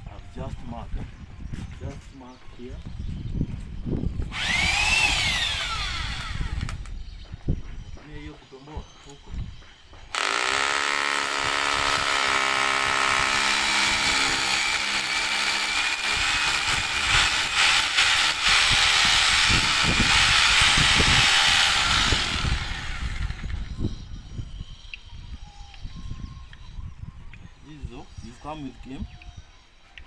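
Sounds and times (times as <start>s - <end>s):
electric drill boring: 4.3s - 6.9s, 10.1s - 23.7s.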